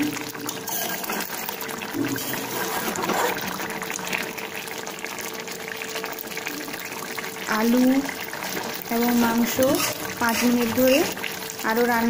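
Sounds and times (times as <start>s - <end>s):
curry simmering and sizzling: 0.0s - 12.0s
spatula stirring thick gravy: 9.3s - 11.4s.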